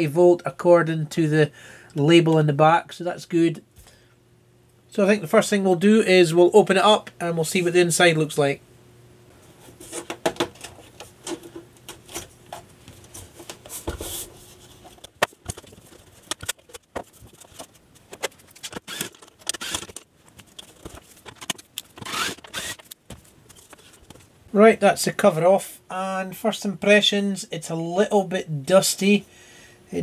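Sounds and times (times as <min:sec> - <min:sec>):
screwdriver working screws: 0:18.6 - 0:20.1, 0:21.3 - 0:23.0.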